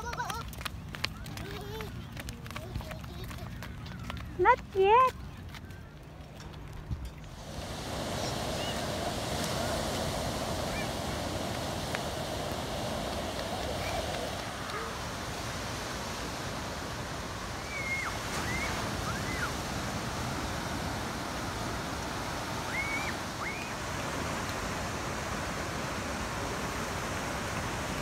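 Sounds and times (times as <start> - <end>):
ocean surf breaking: 7.3 - 28.0.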